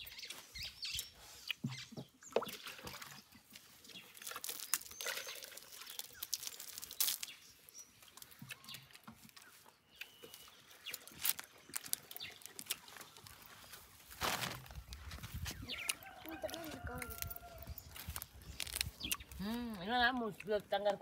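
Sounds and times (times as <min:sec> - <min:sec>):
bird chirps: 0:00.0 - 0:02.7, 0:03.9 - 0:13.4.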